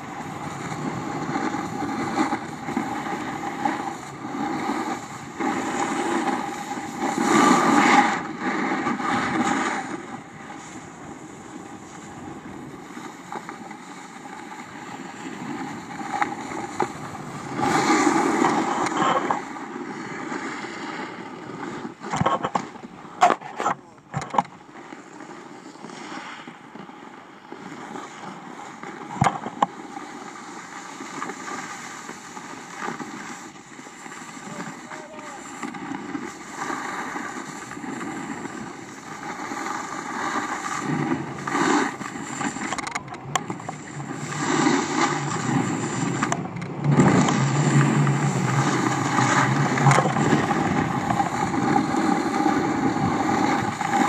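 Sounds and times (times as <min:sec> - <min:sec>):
snowboard scraping over snow: 0:00.0 - 0:54.0
wind on microphone: 0:31.8 - 0:54.0.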